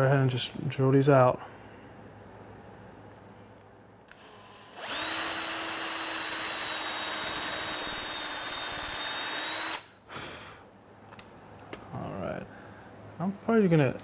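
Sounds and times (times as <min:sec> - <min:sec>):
cordless drill boring into wood: 0:04.1 - 0:09.9.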